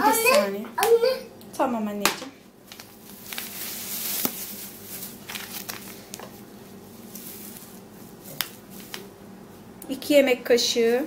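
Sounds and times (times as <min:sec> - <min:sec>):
packaging crinkling and rustling: 0:02.6 - 0:09.1.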